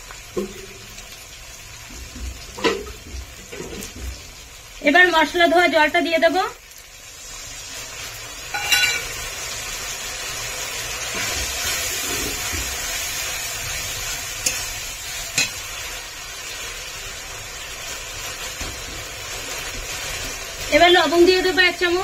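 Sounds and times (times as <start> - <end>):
spice paste sizzling in hot oil: 0.0 - 22.0
metallic clink: 8.6 - 9.1.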